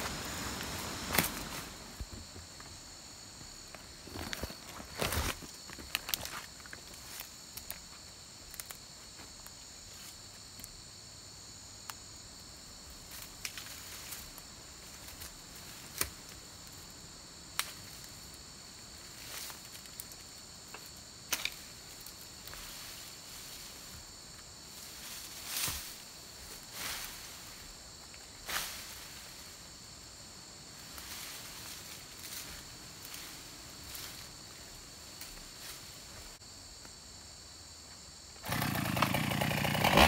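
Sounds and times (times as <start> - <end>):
rustling in brush: 0.0 - 2.3
footsteps in brush: 0.0 - 2.8
insects chorus: 0.0 - 40.0.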